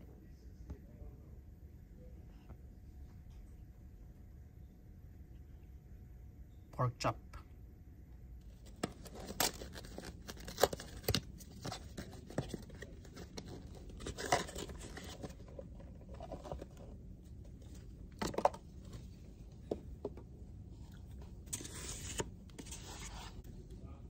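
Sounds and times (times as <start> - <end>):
paperboard box crinkling: 8.6 - 17.0.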